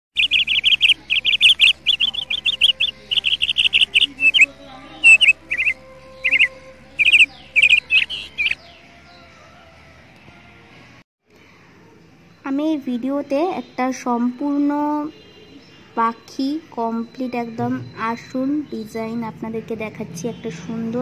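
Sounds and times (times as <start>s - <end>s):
small bird chirping: 0.2s - 8.8s.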